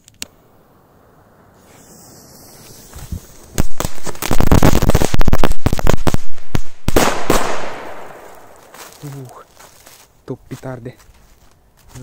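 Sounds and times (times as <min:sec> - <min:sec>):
firecracker bangs with hiss: 0:01.6 - 0:09.0
firecrackers popping: 0:01.6 - 0:10.1.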